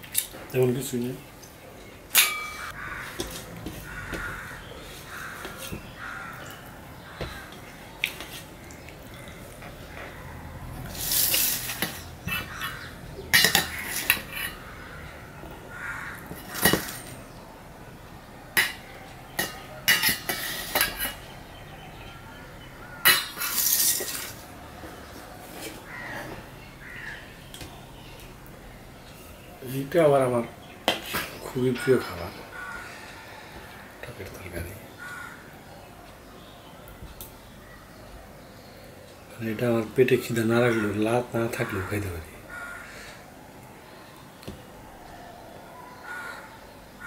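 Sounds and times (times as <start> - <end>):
steel plates clinking and scraping: 2.2 - 2.7.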